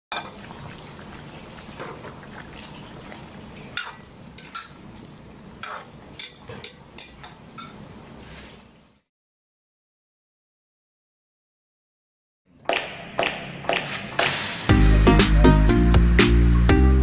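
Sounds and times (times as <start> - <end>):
stew simmering: 0.1 - 8.6
metal ladle scraping a pan: 5.6 - 8.5.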